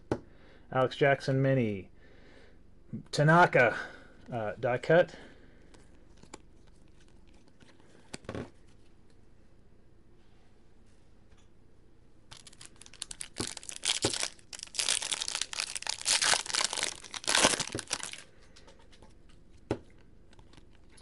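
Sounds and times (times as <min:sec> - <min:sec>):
foil wrapper tearing and crinkling: 0:12.3 - 0:18.2.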